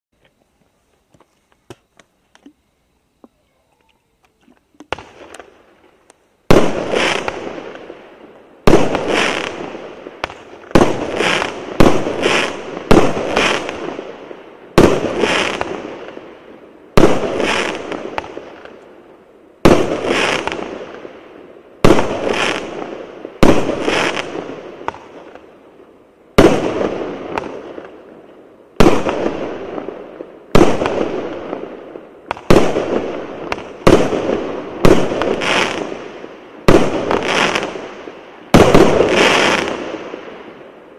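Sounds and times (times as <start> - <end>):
fireworks cake firing: 6.4 - 8.0, 28.7 - 40.8.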